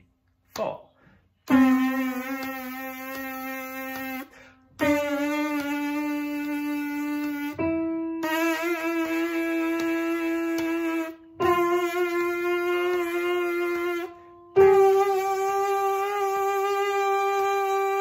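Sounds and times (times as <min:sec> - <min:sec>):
brass player's lip buzz: 0:01.5 - 0:18.0.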